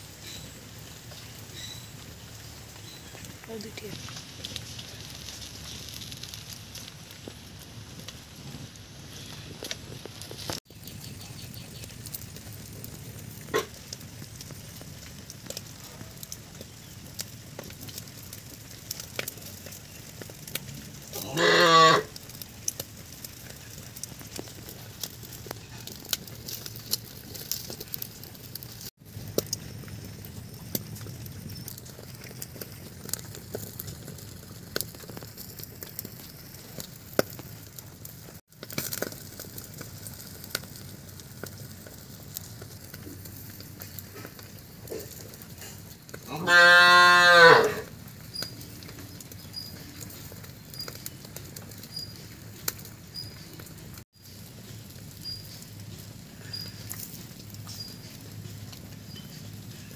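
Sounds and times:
wood fire crackling: 0.0s - 59.9s
animal call: 21.2s - 22.1s, 46.3s - 47.9s.

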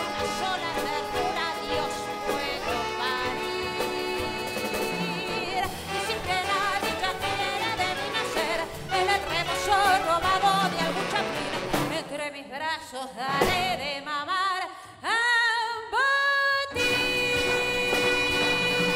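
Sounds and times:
band and orchestra playing: 0.0s - 12.2s, 13.3s - 13.8s, 16.8s - 18.9s
woman singing with vibrato: 0.0s - 18.9s.

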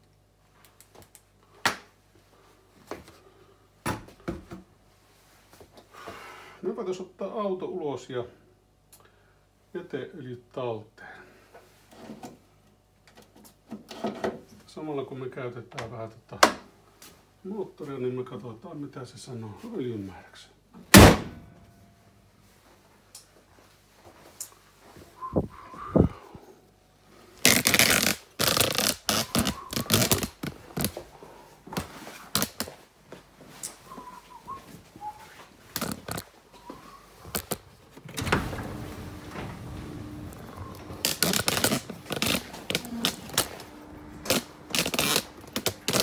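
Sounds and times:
steady low noise: 37.3s - 46.0s.

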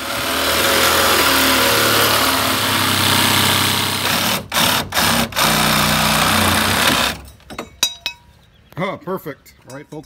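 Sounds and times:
reciprocating saw cutting metal: 0.0s - 7.2s.

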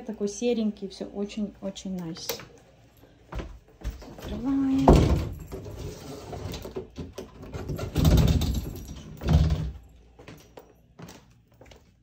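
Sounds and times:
bifold closet doors bumping open: 4.3s - 9.8s.

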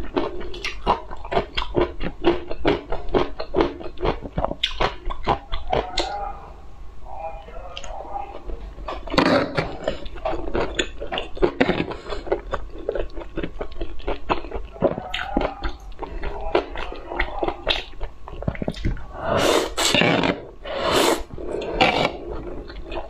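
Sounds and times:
chewing and mouth smacks: 0.0s - 6.2s, 7.8s - 19.1s, 21.3s - 23.0s
loud noodle slurp: 19.1s - 22.7s.

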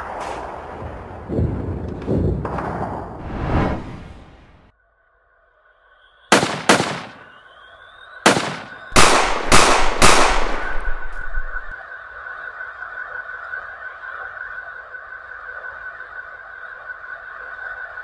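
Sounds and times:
sharp gunshots: 6.3s - 7.3s, 8.2s - 11.7s.

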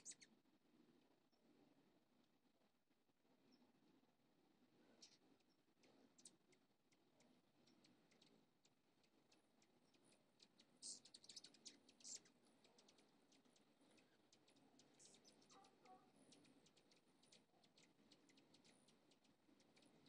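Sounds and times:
hummingbirds calling: 0.0s - 0.3s, 9.0s - 20.0s.

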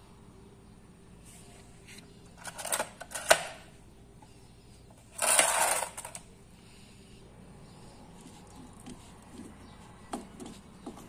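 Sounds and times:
clattering scraping rustle: 5.1s - 6.2s.

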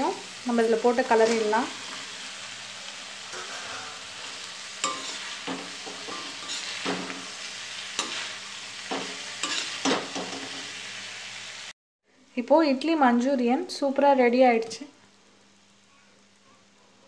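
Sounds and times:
food sizzling: 0.0s - 11.8s, 12.4s - 16.8s
metal spatula scraping a pan: 3.2s - 10.8s.

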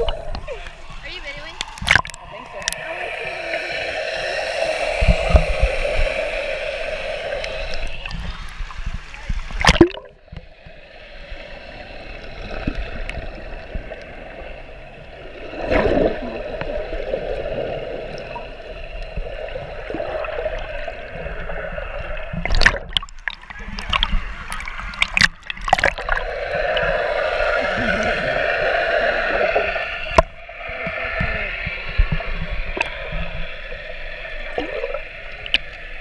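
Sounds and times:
underwater bubbling pool water: 0.0s - 36.0s
sharp underwater thumps: 9.5s - 10.2s.

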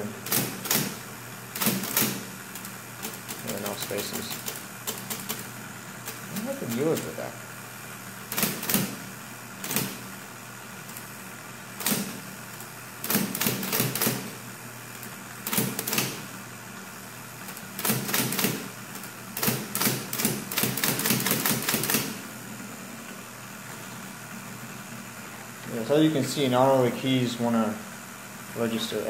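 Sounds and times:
typewriter motor hum: 0.0s - 22.4s
typewriter type-bar strikes: 0.2s - 1.0s, 1.6s - 2.2s, 8.3s - 9.0s, 9.6s - 10.0s, 11.8s - 12.2s, 13.0s - 14.3s, 15.5s - 16.2s, 17.8s - 18.7s, 19.4s - 22.2s.

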